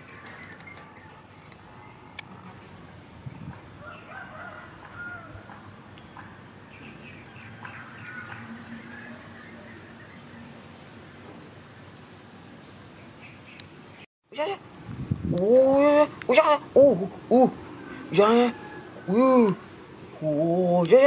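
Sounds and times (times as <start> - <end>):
birds chirping and calling: 0.0 - 10.6.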